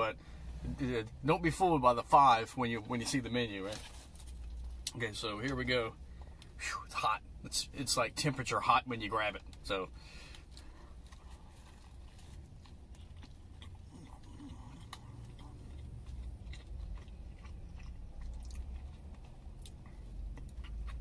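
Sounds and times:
steady low rumble: 0.0 - 21.0
man chewing food: 9.4 - 21.0.

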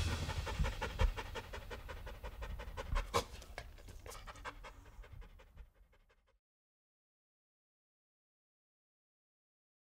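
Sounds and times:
dog panting rapidly: 0.0 - 6.4.

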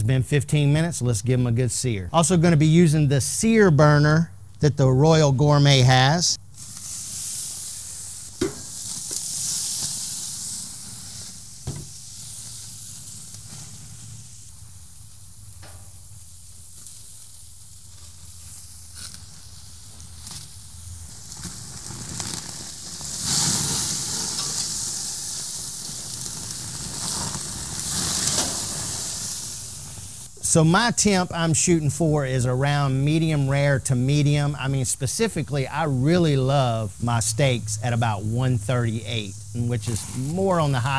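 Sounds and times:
steaks sizzling on grill: 6.6 - 30.4, 35.5 - 40.9.

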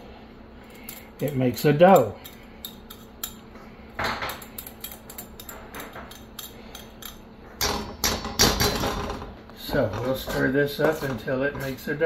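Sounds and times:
loud scrape: 9.7 - 11.8.

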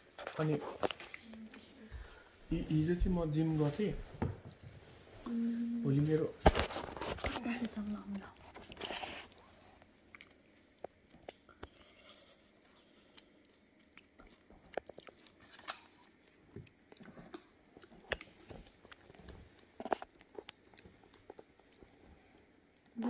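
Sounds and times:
plastic spoon stirring food in bowl: 6.3 - 9.9.

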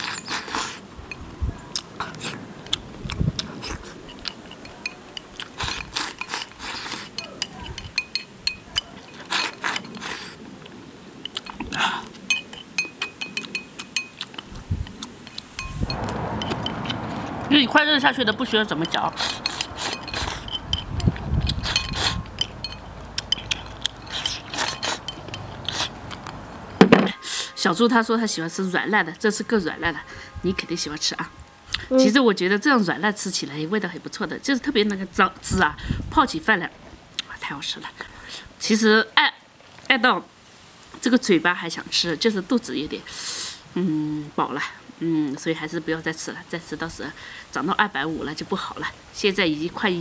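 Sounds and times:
chewing with small clicks: 1.7 - 15.5, 19.2 - 26.4
slurping: 1.8 - 8.0, 8.8 - 10.5, 18.9 - 26.4
chopsticks clicking on a bowl: 18.8 - 26.4.

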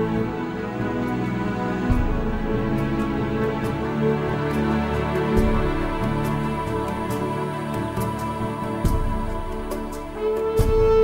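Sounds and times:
slow soft instrumental music: 0.0 - 11.0.

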